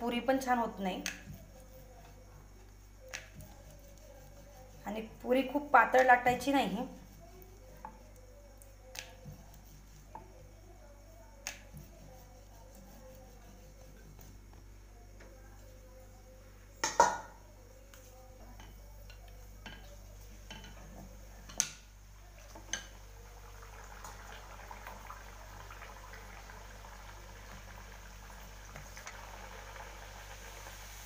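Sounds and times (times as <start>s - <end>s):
dough sizzling in hot oil: 0.0s - 10.8s, 18.0s - 31.0s.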